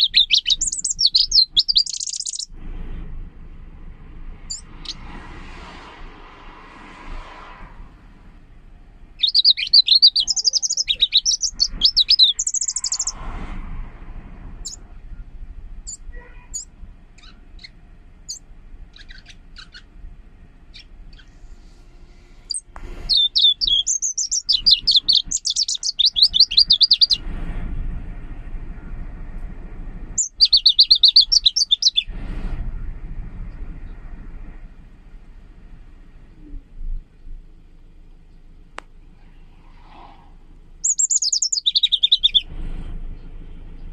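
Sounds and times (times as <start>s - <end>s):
bird singing high trills: 0.0s - 2.5s, 4.5s - 5.0s, 9.2s - 13.2s, 15.9s - 19.9s, 22.5s - 27.2s, 30.2s - 32.1s, 40.8s - 42.5s.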